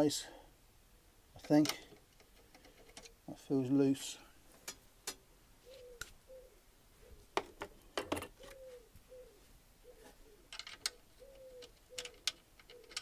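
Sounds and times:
soft low cooing: 0:05.6 - 0:07.3, 0:08.4 - 0:13.0.

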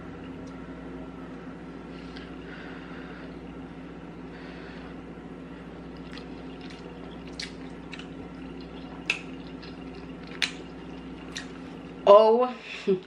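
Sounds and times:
steady low hum: 0:00.0 - 0:13.0
person chewing with lip smacks: 0:05.9 - 0:11.6.

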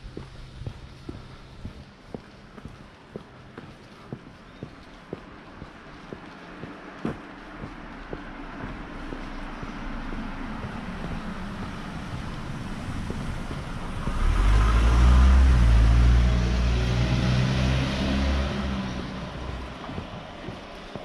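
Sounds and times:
minivan driving past: 0:09.4 - 0:20.8.

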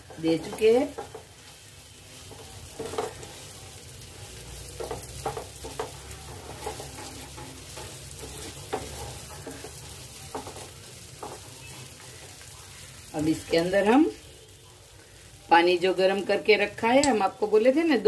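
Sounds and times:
spatula scraping and tapping pan: 0:00.0 - 0:12.5
food sizzling in a pan: 0:00.0 - 0:18.0.

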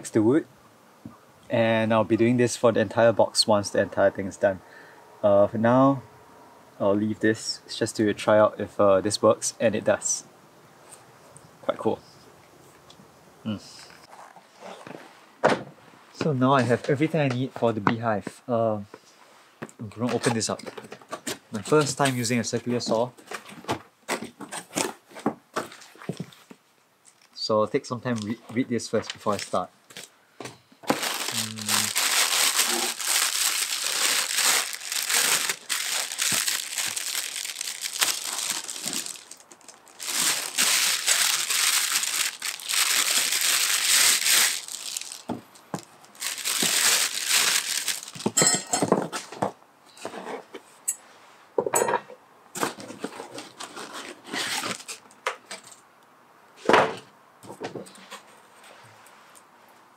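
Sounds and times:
plastic packaging crinkling: 0:30.8 - 0:48.8, 0:53.4 - 0:55.0.

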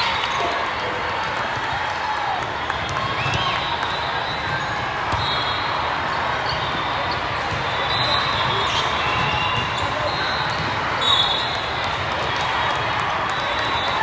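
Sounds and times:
hubbub of a big hall: 0:00.0 - 0:14.0
volleyballs hit and bouncing: 0:00.0 - 0:14.0
shoes squeaking on court floor: 0:03.2 - 0:11.7.

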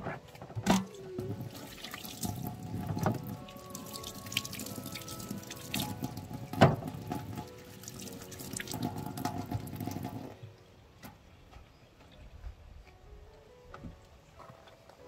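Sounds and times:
water running and splashing: 0:00.8 - 0:10.4
small clinks and drips: 0:01.8 - 0:10.2.

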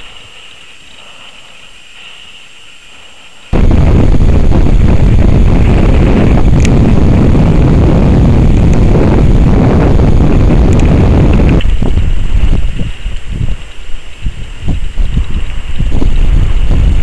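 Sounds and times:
wind buffeting microphone: 0:03.5 - 0:17.0.

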